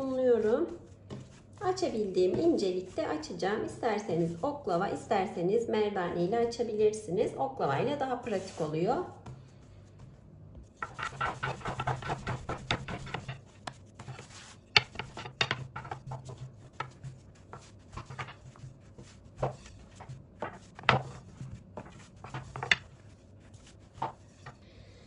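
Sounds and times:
rolling pin rolling dough: 0.0 - 4.4, 7.8 - 24.6
rolling pin knocking on table: 10.8 - 13.4, 14.7 - 17.0, 19.4 - 22.9.

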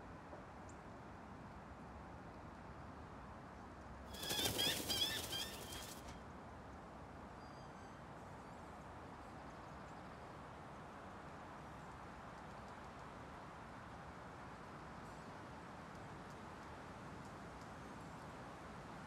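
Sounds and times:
bird wing flaps: 4.1 - 6.2
forest ambience: 4.1 - 6.2
bird chirps: 4.2 - 6.0.

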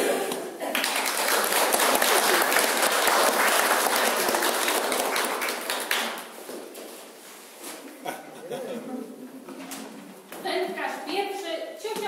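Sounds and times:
audience applauding: 0.6 - 6.3.

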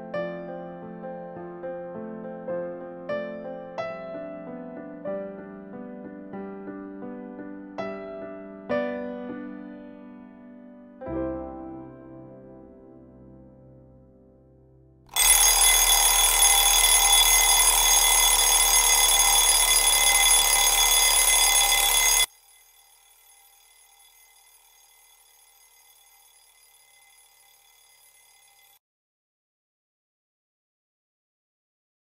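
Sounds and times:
electric alarm bell ringing: 15.1 - 28.8.

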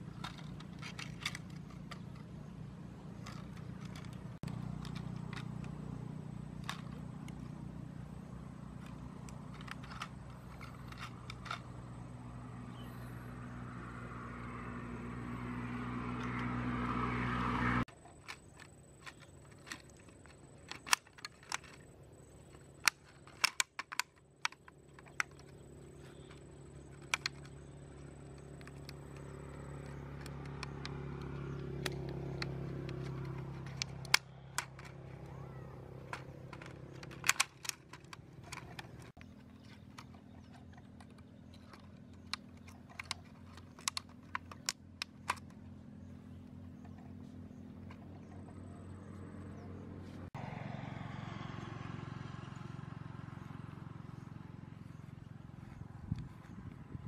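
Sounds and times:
steady engine hum: 0.0 - 57.0
plastic bottle clicking and crackling: 36.0 - 45.5.

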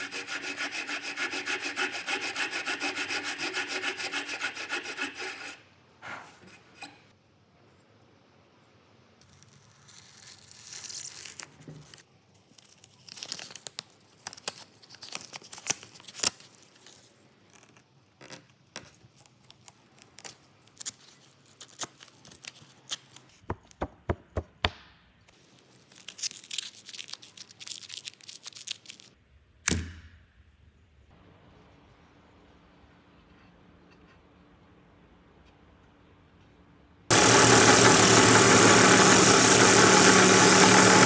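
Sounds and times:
hook-and-loop tape ripping: 9.2 - 23.3, 25.5 - 29.2.

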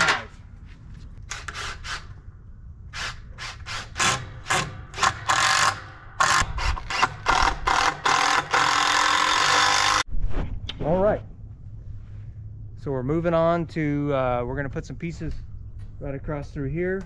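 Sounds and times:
cordless drill driving screws: 3.0 - 10.0.

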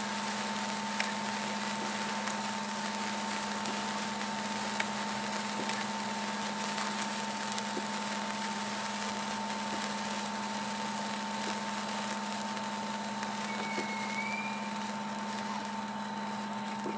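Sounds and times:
sparklers fizzing and crackling: 0.0 - 16.9
faint whistle-like glide: 13.4 - 14.9.

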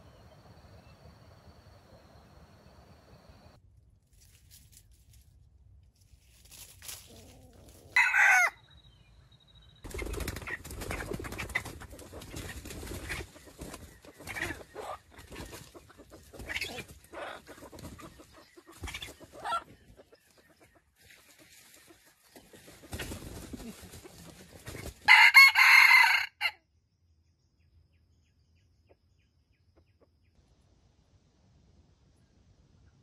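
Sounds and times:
scuffling and wing-flapping: 6.0 - 8.0, 9.9 - 25.1
rooster crowing: 8.0 - 8.6, 25.1 - 26.6
chicken clucks: 10.3 - 25.0.

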